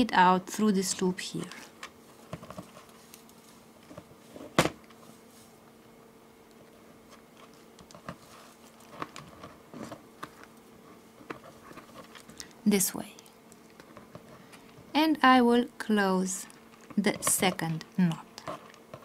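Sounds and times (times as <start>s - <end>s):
cord rustling: 1.3s - 5.6s, 7.1s - 12.6s.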